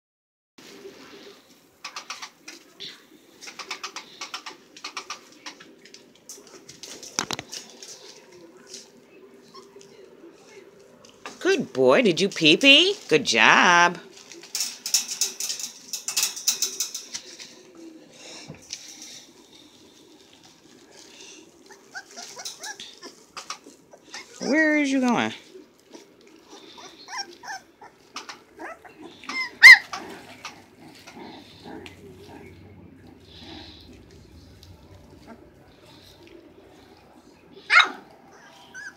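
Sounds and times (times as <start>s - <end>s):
puppies crinkling and scratching: 0.6s - 38.9s
puppies squeaking: 21.6s - 24.6s, 26.0s - 36.3s, 37.5s - 38.9s.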